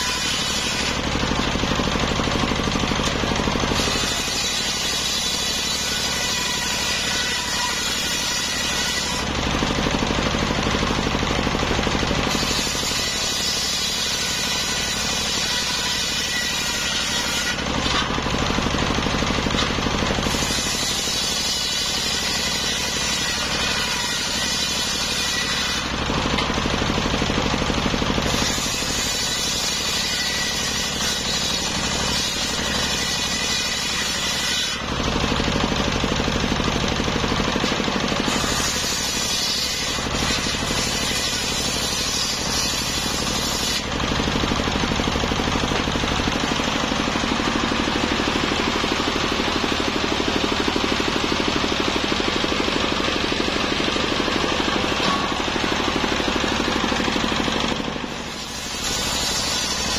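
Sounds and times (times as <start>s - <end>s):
saw blade spinning free: 0.0s - 9.4s, 37.5s - 59.9s
circular saw cutting wood: 0.0s - 59.9s.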